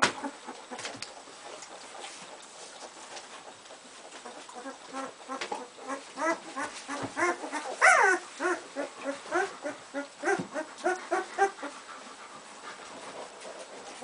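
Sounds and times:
puppies whimpering and squeaking: 4.0 - 12.1.

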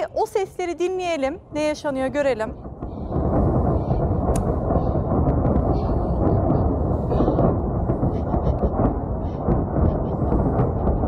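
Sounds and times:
rumble of distant explosions: 0.0 - 11.0
sharp cracks: 2.5 - 11.0.

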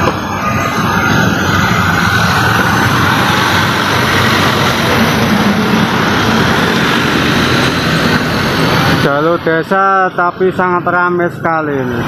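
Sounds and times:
road traffic passing: 0.0 - 12.0
truck engines running: 0.0 - 12.0.

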